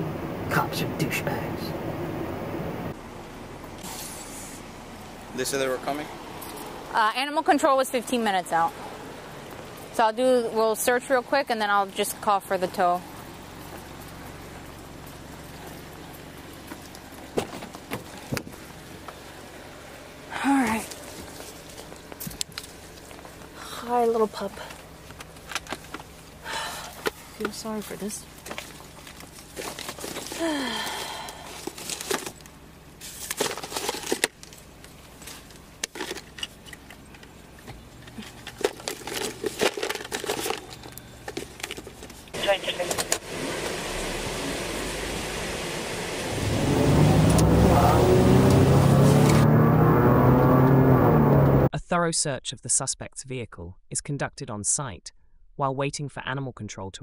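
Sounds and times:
low background hum: 0:00.0 - 0:46.2
papers rustling: 0:27.0 - 0:30.4, 0:31.5 - 0:43.2.

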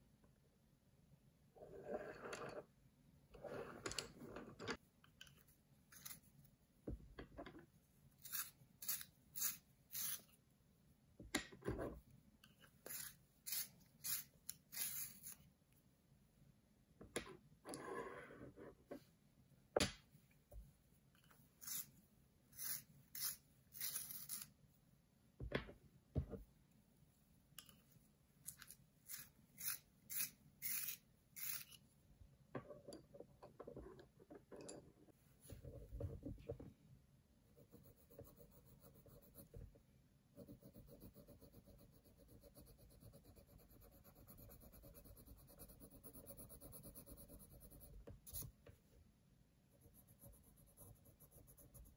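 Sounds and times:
coloured pencils rasping: 0:08.2 - 0:10.4, 0:12.6 - 0:15.5, 0:21.6 - 0:24.6, 0:28.4 - 0:31.8
pencil shading on paper: 0:37.5 - 0:39.6, 0:40.4 - 0:48.5, 0:49.8 - 0:51.9.

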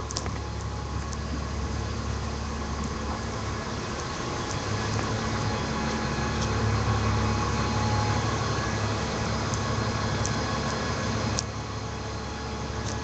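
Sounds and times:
bus engine humming: 0:00.0 - 0:13.0.

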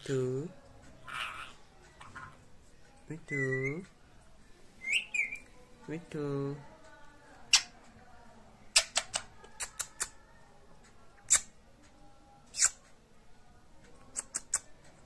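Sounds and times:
parakeet squeaks and clicks: 0:03.2 - 0:03.9, 0:04.8 - 0:05.5, 0:07.5 - 0:07.8, 0:08.8 - 0:10.2, 0:11.3 - 0:11.5, 0:12.5 - 0:12.8, 0:14.1 - 0:14.7.

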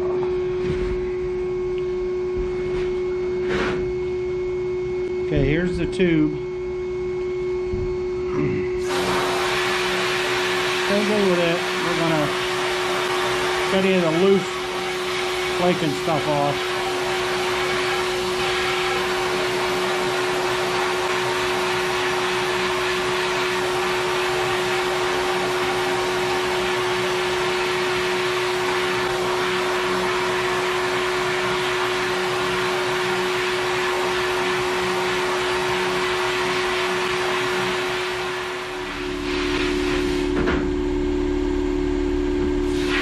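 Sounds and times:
sandblast nozzle hissing: 0:08.8 - 0:27.1.

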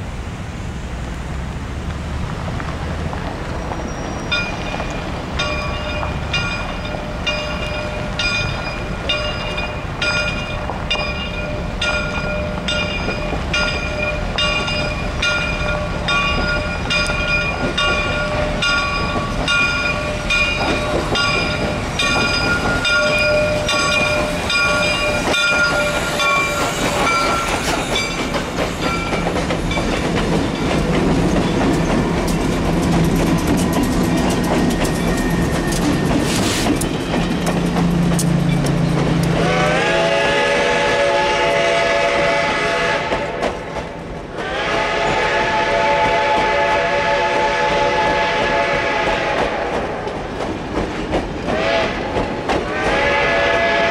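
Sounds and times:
train rumbling past: 0:00.0 - 0:53.9
locomotive bell ringing: 0:03.9 - 0:32.5, 0:33.6 - 0:36.3, 0:36.9 - 0:39.0
steam hissing: 0:11.6 - 0:53.9.

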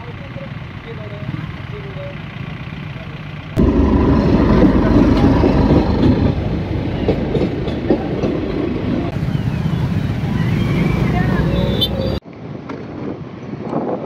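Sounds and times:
idling traffic noise: 0:00.0 - 0:12.2
train wheels clickety-clack on rails: 0:03.3 - 0:09.2.

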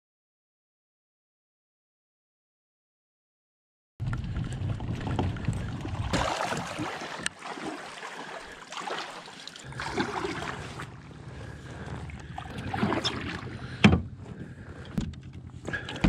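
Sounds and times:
wind rumbling on microphone: 0:04.0 - 0:07.3
water sloshing around kayak: 0:04.3 - 0:16.0.

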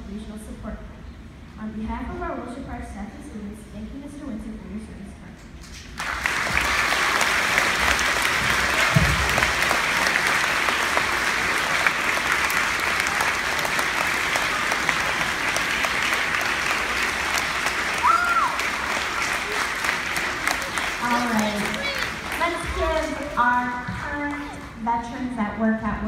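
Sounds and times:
children applauding: 0:06.0 - 0:23.5.

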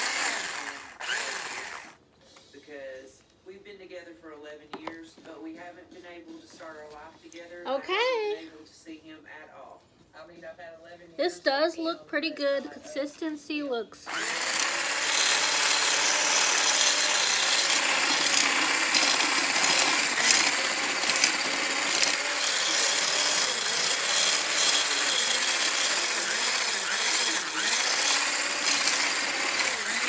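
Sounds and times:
electric hand blender whisking: 0:00.0 - 0:02.0, 0:14.1 - 0:30.0
whisk scraping metal bowl: 0:15.0 - 0:28.1.

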